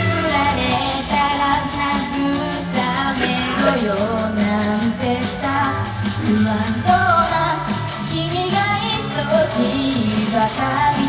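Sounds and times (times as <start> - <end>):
recorded band backing track: 0.0 - 11.0
women singing upbeat pop song: 0.0 - 11.0.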